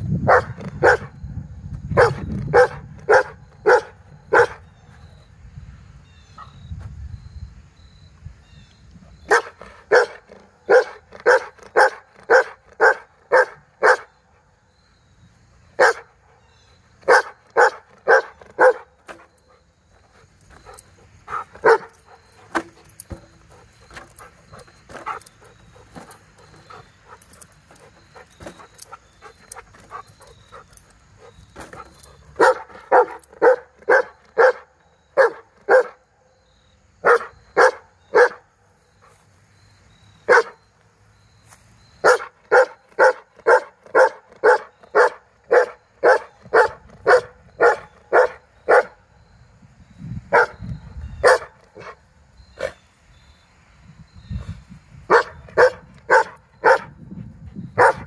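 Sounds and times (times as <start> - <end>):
dog barking: 0.3 - 1.1, 2.0 - 4.6, 9.3 - 14.1, 15.8 - 16.1, 17.1 - 18.9, 21.3 - 21.9, 32.4 - 36.0, 37.0 - 38.4, 40.3 - 40.6, 42.0 - 49.0, 50.3 - 50.6, 51.2 - 52.0, 55.1 - 57.0, 57.8 - 58.0.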